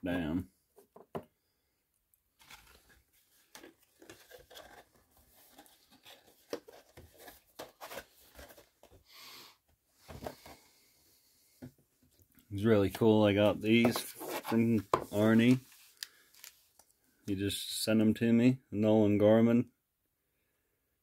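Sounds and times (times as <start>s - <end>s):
trading cards rustling: 2.4s - 9.0s, 12.9s - 16.9s.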